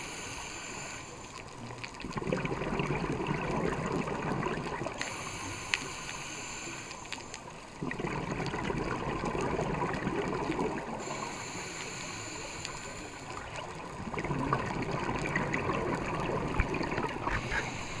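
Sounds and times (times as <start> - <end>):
regulator inhale hissing: 0.0 - 1.5, 5.0 - 7.5, 11.0 - 13.8, 17.2 - 18.0
exhaled bubbles gurgling: 0.0 - 18.0.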